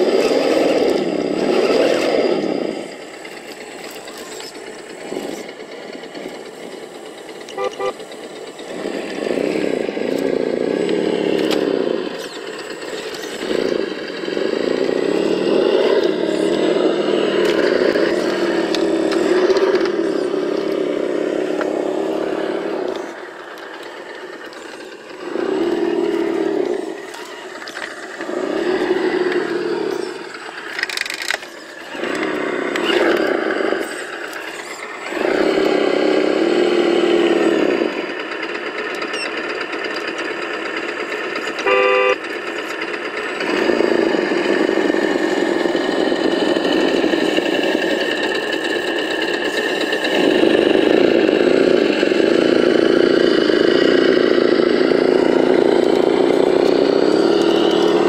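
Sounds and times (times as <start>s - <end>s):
simulated engine sound: 0.0s - 58.0s
short horn toot: 7.5s - 8.0s, 41.6s - 42.2s.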